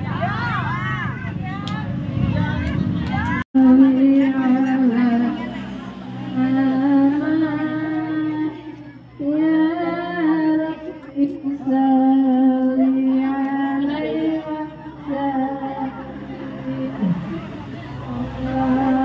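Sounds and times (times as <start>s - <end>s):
woman singing long held notes: 6.3s - 19.0s.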